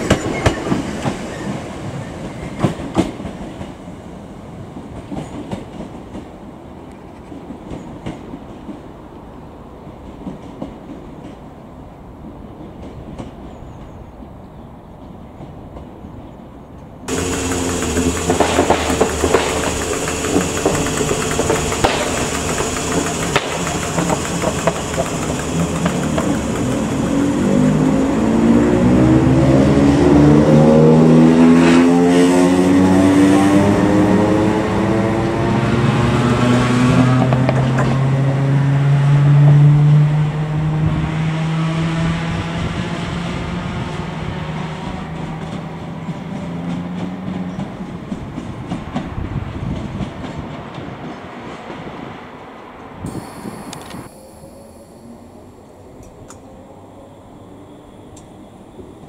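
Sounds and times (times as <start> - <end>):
electric train hum: 0.0 - 59.0
train motors whining: 17.1 - 30.2, 53.0 - 59.0.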